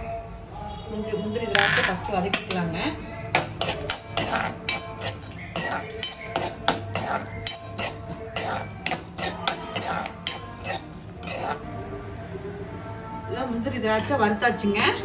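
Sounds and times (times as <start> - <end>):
metal spoon scraping a pan: 3.2 - 11.6
nuts frying: 3.3 - 11.6.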